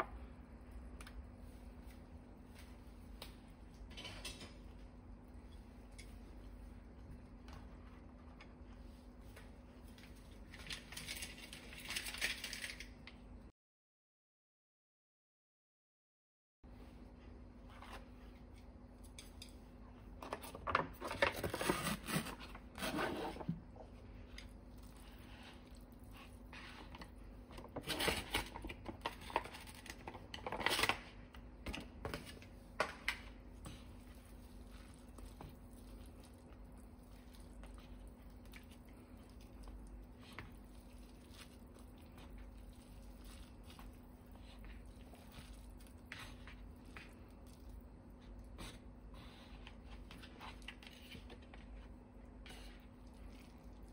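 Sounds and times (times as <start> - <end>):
steady low hum: 31.1 - 53.9.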